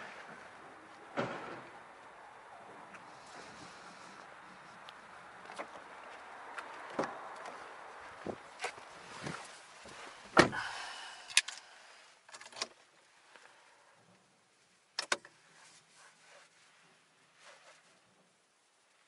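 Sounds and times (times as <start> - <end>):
car door thud: 1.2 - 1.7, 10.3 - 10.6.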